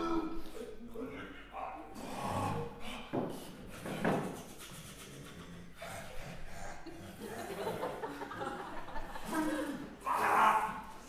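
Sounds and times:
breathy vocal bursts: 0.0 - 3.2
breath and mouth noises: 0.4 - 7.3.

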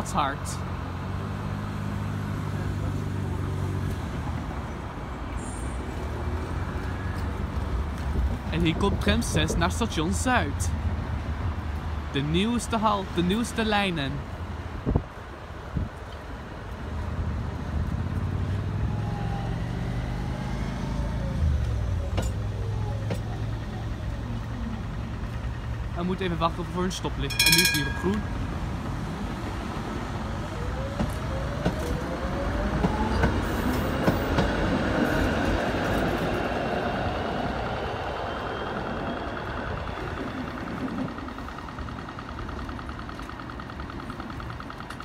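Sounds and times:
city road traffic: 0.0 - 45.0
tram wheels rumbling on rails: 0.0 - 45.0
low vehicle hum: 14.2 - 34.3.

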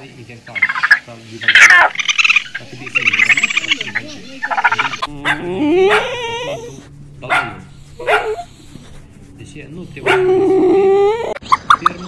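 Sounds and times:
raccoon trilling chitter: 0.5 - 8.8, 9.8 - 12.0
puppy yipping: 1.5 - 8.7, 10.0 - 12.0
puppy whining: 1.5 - 9.0, 10.0 - 11.5.

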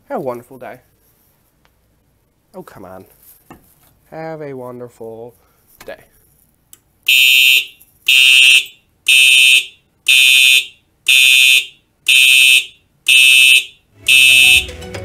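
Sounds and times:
fire alarm horn blasts: 7.1 - 14.7
end-card music: 14.0 - 15.0.

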